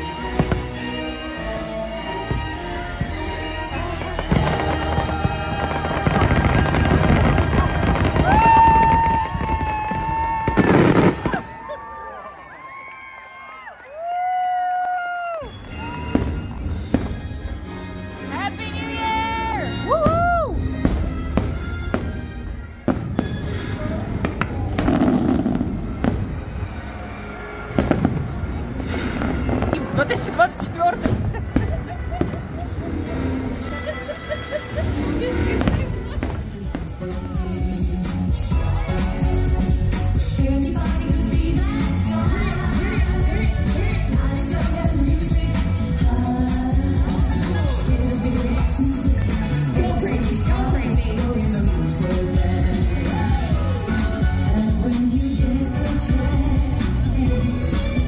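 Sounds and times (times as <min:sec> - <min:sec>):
fireworks crackling and popping: 0:00.0 - 0:01.4, 0:02.2 - 0:11.8, 0:14.3 - 0:17.6, 0:19.9 - 0:26.7, 0:27.7 - 0:32.8, 0:35.5 - 0:58.0
fireworks explosions: 0:00.0 - 0:01.4, 0:02.0 - 0:11.8, 0:15.5 - 0:17.7, 0:19.9 - 0:27.0, 0:27.6 - 0:33.3, 0:35.0 - 0:58.0
loud show music: 0:00.0 - 0:11.1, 0:16.1 - 0:58.0.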